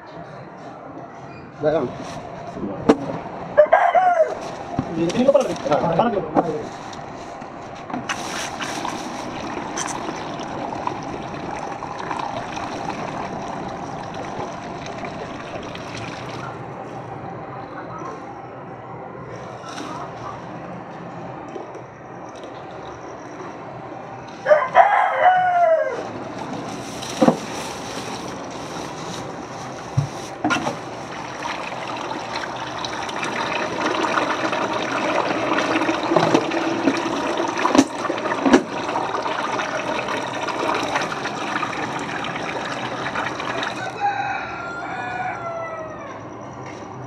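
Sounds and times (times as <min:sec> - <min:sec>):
rooster crowing: 0:03.5 - 0:04.6, 0:24.4 - 0:26.1, 0:43.6 - 0:46.4
paint pouring into a bucket: 0:08.1 - 0:16.6, 0:26.8 - 0:44.0.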